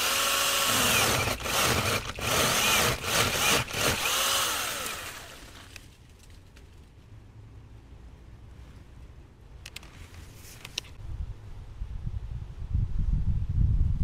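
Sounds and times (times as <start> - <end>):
electric chainsaw cutting wood: 0.0 - 5.8.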